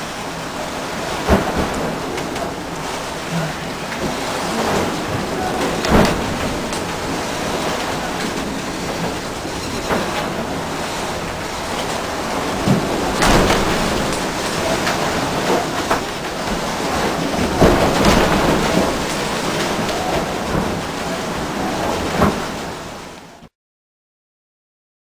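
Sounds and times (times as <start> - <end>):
water rumbling against hulls: 0.0 - 23.4
waves slamming boat: 0.0 - 23.5.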